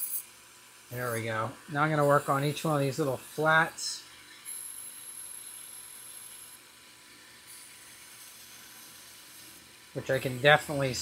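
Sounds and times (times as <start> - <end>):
belt grinder grinding knife: 0.0 - 11.0.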